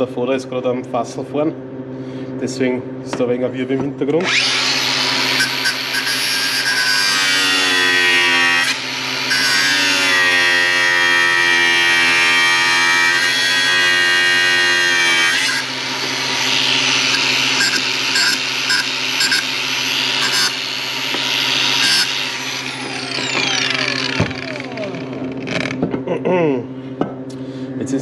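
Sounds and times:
power grinder motor whining: 4.2s - 26.0s
grinder rasping against metal: 4.3s - 25.9s.

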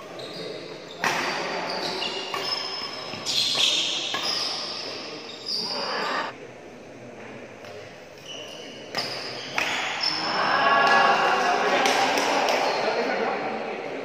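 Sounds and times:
shoes squeaking on court floor: 0.0s - 6.3s, 8.2s - 10.3s
racket hitting shuttlecock: 1.0s - 1.5s, 2.2s - 4.5s, 8.9s - 9.9s.

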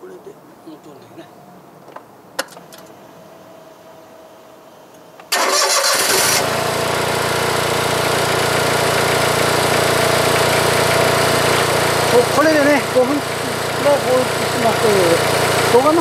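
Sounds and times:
engine cranking: 5.3s - 7.2s
engine running steadily: 5.3s - 16.0s.

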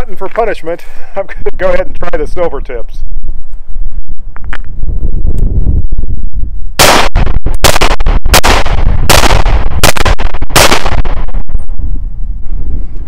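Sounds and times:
pistol shots: 6.8s - 11.4s.

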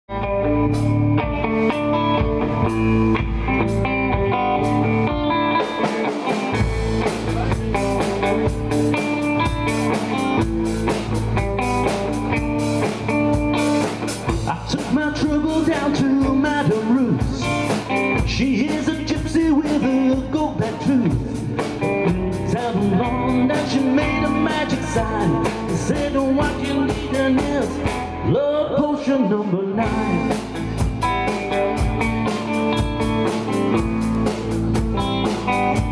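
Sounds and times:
drum kit: 0.1s - 29.1s, 29.8s - 35.9s
electric guitar: 0.1s - 35.9s
man singing: 14.4s - 31.0s.

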